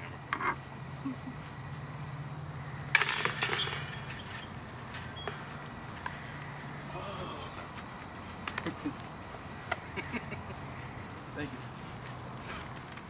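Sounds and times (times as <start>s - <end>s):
disc striking basket chains: 2.9s - 5.6s.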